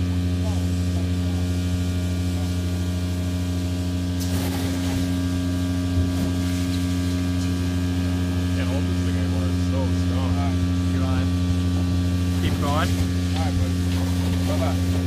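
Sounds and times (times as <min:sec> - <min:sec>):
industrial vacuum humming: 0:00.0 - 0:15.0.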